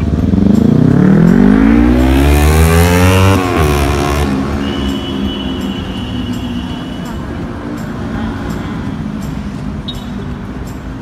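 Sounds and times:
vehicle engine accelerating: 0.0s - 6.5s.

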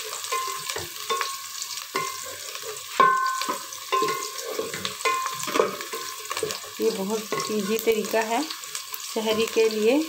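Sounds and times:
onions sizzling: 0.0s - 10.0s
wooden spoon scraping metal pot: 0.2s - 8.2s.

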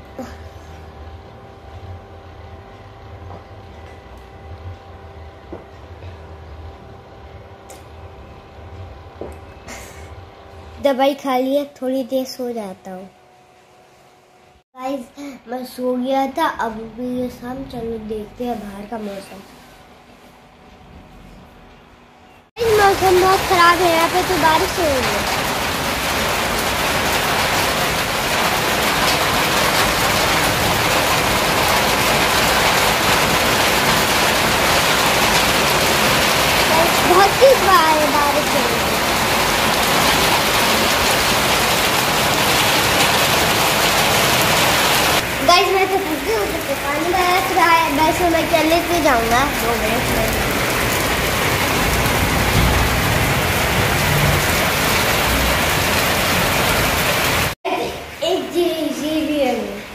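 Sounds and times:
rain falling: 22.6s - 59.9s.

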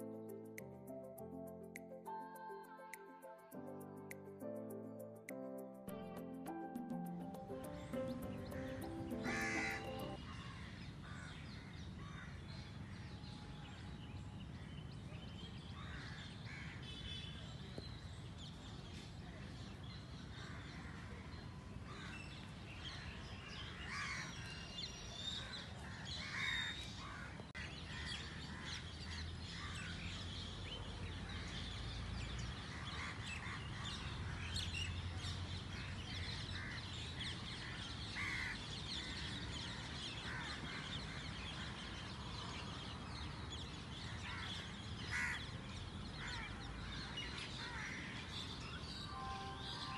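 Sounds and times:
birds chirping: 6.6s - 10.3s
crows cawing: 8.6s - 11.3s, 38.2s - 38.6s, 44.2s - 45.4s.

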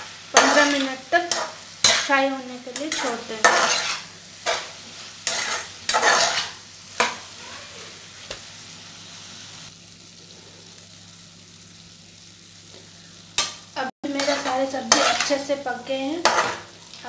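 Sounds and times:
vegetables sizzling: 0.0s - 17.0s
spatula scraping a frying pan: 0.4s - 2.2s, 2.8s - 8.0s, 14.1s - 15.4s, 16.2s - 16.7s.

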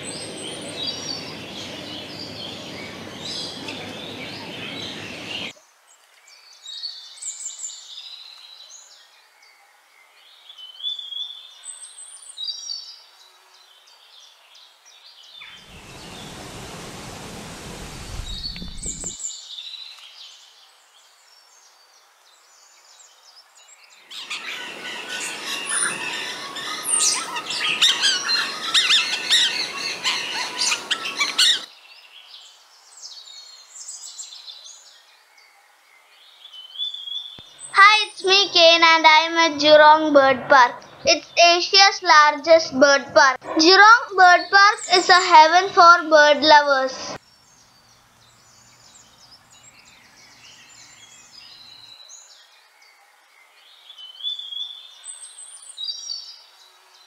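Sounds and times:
birds chirping and calling: 0.0s - 5.5s, 15.4s - 19.3s, 24.1s - 31.7s, 40.4s - 52.8s
rushing noise: 15.6s - 19.2s.

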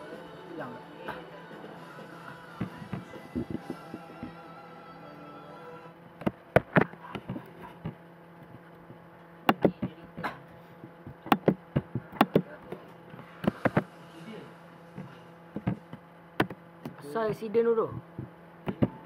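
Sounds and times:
steady low hum: 0.0s - 19.0s
keyboard and mouse clicks: 11.2s - 12.4s.

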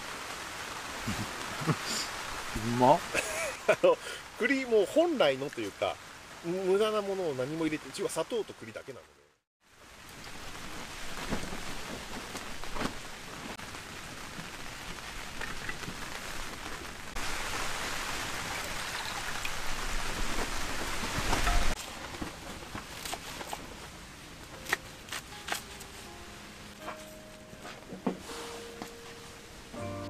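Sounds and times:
heavy rain on a tent: 0.0s - 29.8s.

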